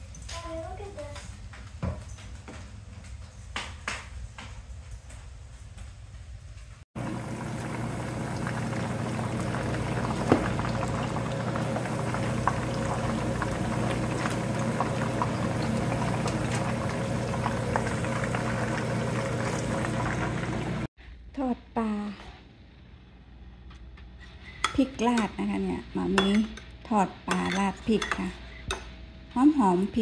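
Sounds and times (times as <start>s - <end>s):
fish sizzling in hot oil: 7.0s - 20.9s.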